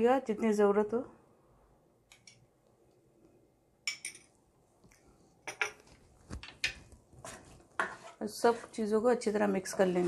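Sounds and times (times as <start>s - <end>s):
metal spoon clinking on dishes: 3.9s - 4.4s.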